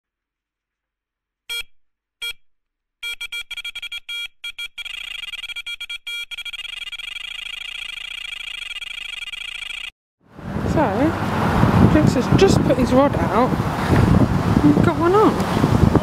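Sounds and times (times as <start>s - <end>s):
fast-pulsing electronic beeping: 3.0s - 9.9s.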